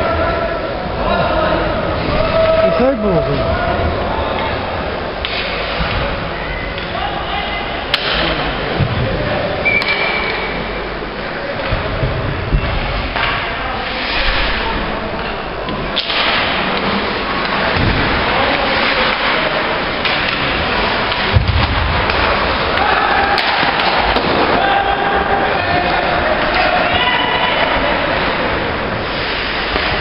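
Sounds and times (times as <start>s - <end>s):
skating and arena noise: 0.0s - 30.0s.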